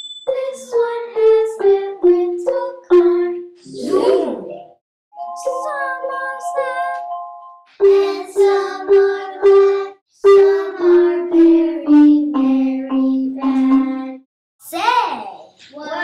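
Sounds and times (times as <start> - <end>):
background music: 3.4 - 14.2.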